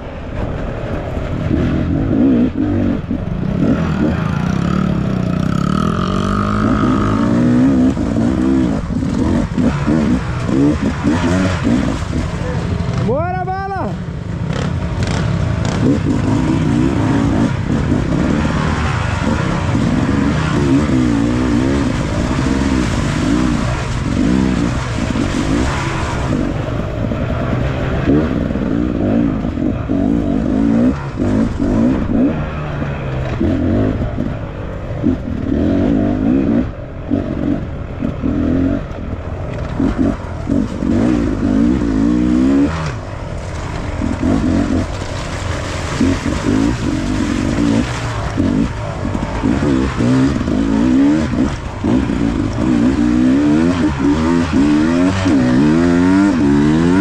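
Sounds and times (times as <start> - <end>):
dirt bike engine revving: 1.4 - 13.3, 14.4 - 57.0.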